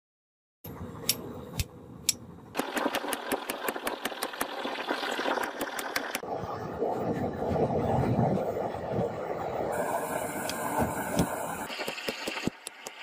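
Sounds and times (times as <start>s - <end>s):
hiss: 9.7s - 13.0s.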